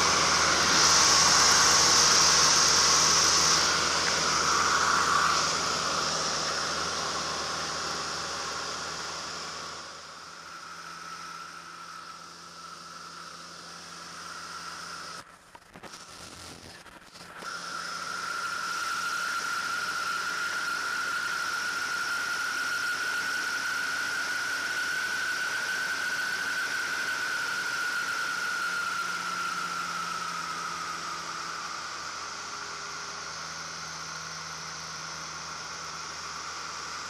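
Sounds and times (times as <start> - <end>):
rushing air: 0.0 - 13.5
plane engine and propeller drone: 0.0 - 15.8, 16.8 - 37.0
steady high whine: 0.0 - 37.0.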